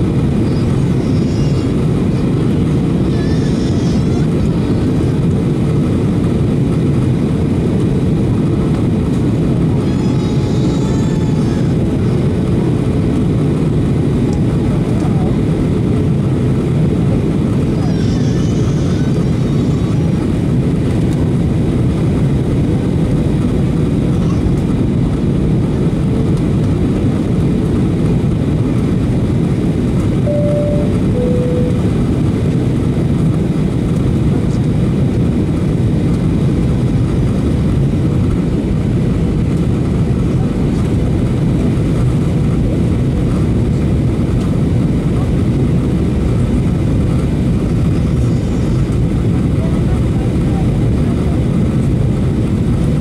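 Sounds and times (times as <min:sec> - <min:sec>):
airplane cabin engine roar: 0:00.0 - 0:53.0
two-note cabin chime: 0:30.3 - 0:32.0.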